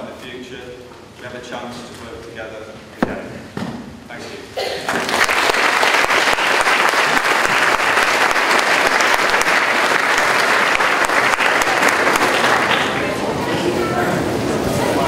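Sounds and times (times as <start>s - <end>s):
audience applauding: 4.9s - 13.4s.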